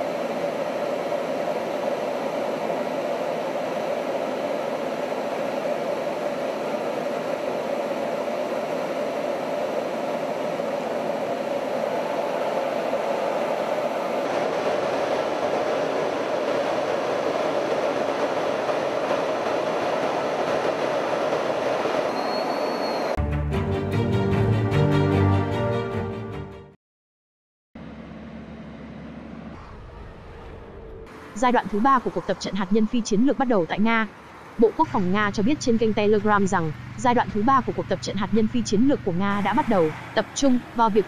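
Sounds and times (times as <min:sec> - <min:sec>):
jet engine and airflow hum: 0:00.0 - 0:23.2.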